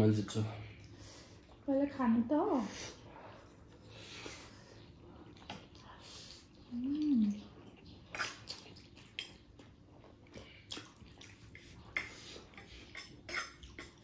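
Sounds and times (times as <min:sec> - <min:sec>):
wet chewing and slurping: 0:02.9 - 0:14.0.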